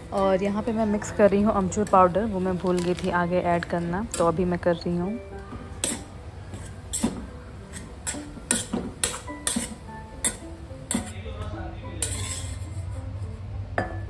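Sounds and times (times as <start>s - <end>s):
background music: 0.0s - 14.0s
spoon scraping a cooking pan: 5.8s - 11.2s, 11.9s - 13.0s.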